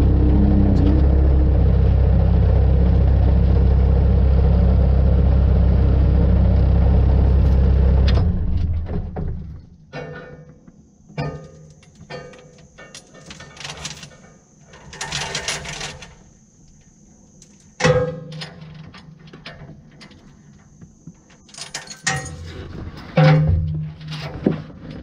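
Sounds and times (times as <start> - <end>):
steel chain rattling: 21.5 - 22.6.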